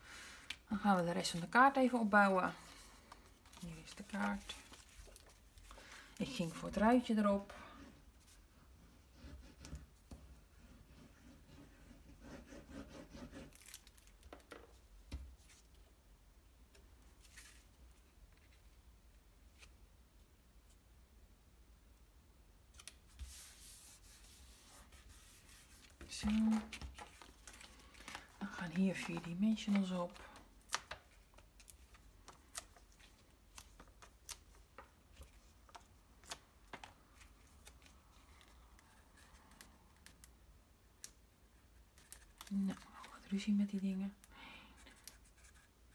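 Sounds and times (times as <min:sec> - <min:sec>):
paper rustling: 0:02.6 - 0:07.1, 0:22.8 - 0:39.6
paper handling clicks and taps: 0:25.9 - 0:32.9, 0:33.5 - 0:37.0.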